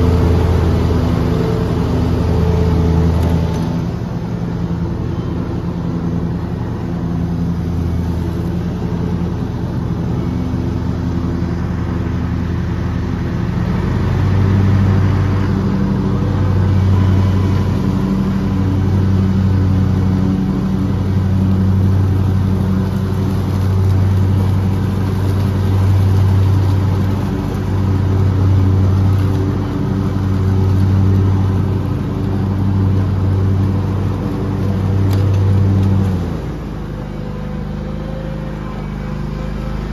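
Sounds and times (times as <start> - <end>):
lawn mower engine running: 0.0 - 39.9.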